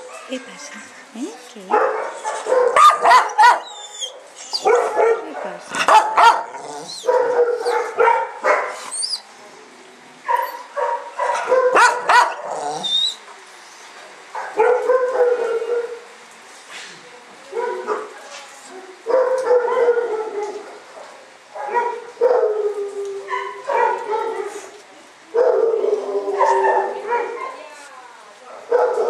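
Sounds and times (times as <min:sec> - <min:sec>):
dogs barking: 0:01.7 - 0:08.8, 0:10.3 - 0:13.0, 0:14.4 - 0:16.0, 0:19.1 - 0:22.6, 0:23.3 - 0:24.6, 0:25.4 - 0:27.6, 0:28.6 - 0:29.0.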